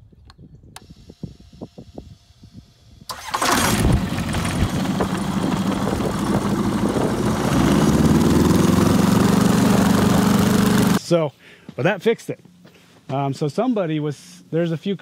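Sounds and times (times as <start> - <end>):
aircraft engine starting and running: 0.8 - 11.0.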